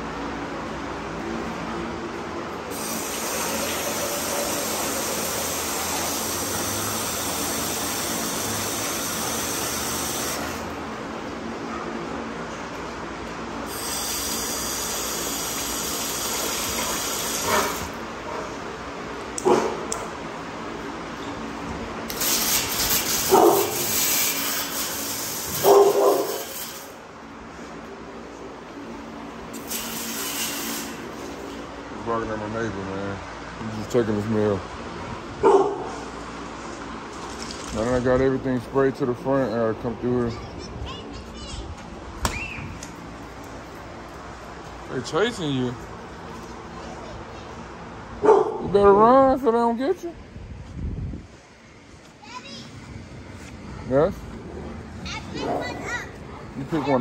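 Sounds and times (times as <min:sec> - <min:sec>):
water spray hosing floor: 0:02.7 - 0:10.7, 0:13.7 - 0:18.0, 0:22.1 - 0:27.0, 0:29.5 - 0:31.7
dog barking: 0:19.4 - 0:19.8, 0:23.3 - 0:23.9, 0:25.6 - 0:26.5, 0:35.4 - 0:36.0, 0:48.2 - 0:48.7.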